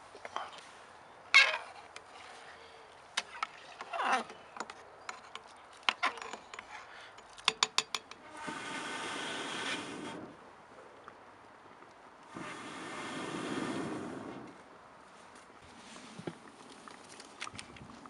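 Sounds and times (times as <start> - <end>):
steady hiss: 8.2 - 10.4, 12.2 - 14.6.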